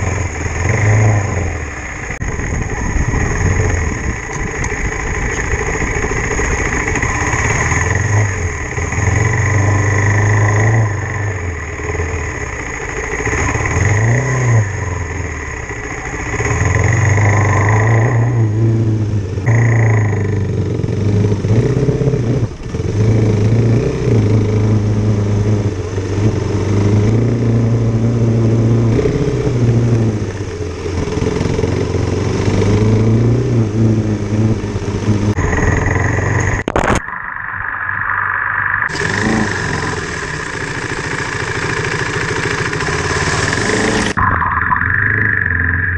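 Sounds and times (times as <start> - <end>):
steady rush of noise: 0.0 - 18.5, 35.3 - 45.9
motorcycle engine revving: 0.0 - 37.0, 38.7 - 45.9.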